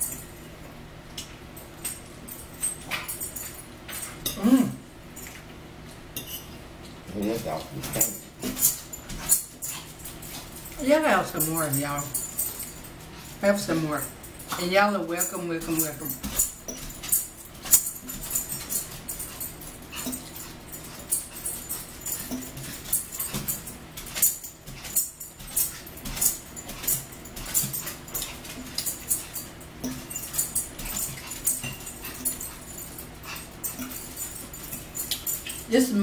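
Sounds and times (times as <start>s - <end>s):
forks clinking on plates: 1.2s - 5.5s, 6.2s - 6.6s, 7.2s - 36.0s.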